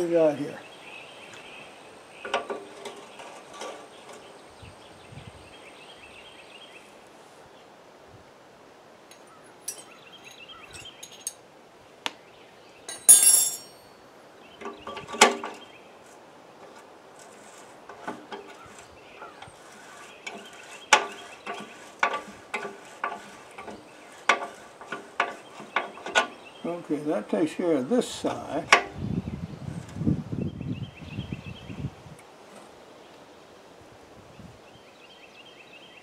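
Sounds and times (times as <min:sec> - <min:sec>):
metal hand tools clinking: 0:09.1 - 0:11.4, 0:12.9 - 0:14.0.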